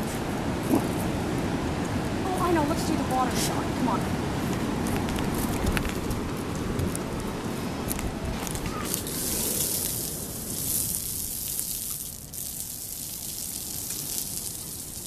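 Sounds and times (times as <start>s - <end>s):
shower water splashing on concrete: 8.7s - 15.0s.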